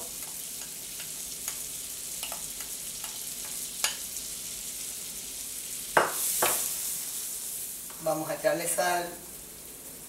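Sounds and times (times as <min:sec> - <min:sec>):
onion sizzling in butter: 0:00.0 - 0:10.0.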